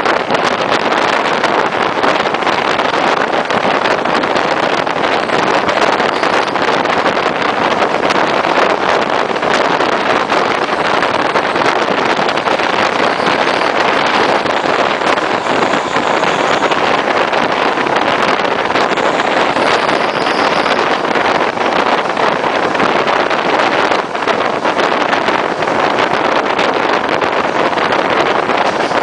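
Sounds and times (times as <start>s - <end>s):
train noise: 0.0s - 29.0s
wind rushing over microphone: 0.0s - 29.0s.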